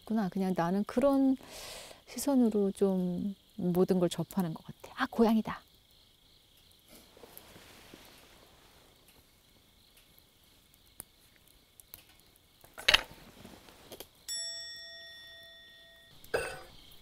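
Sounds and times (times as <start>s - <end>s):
insects chirring: 0.0s - 17.0s
bell-like ding: 14.3s - 16.2s.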